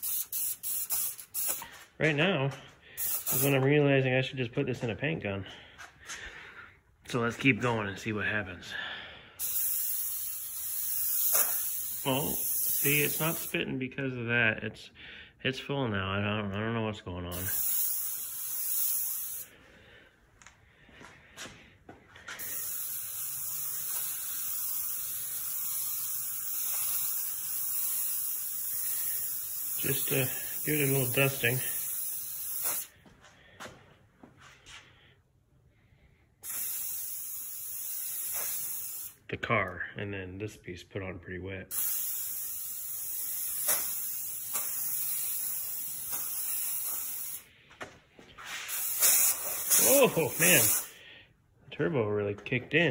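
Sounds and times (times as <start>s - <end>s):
paint sprayer sputtering and hissing: 0.0s - 1.8s, 2.9s - 3.7s, 9.4s - 13.6s, 17.3s - 19.6s, 22.2s - 33.0s, 36.4s - 39.2s, 41.7s - 47.6s, 48.4s - 51.0s.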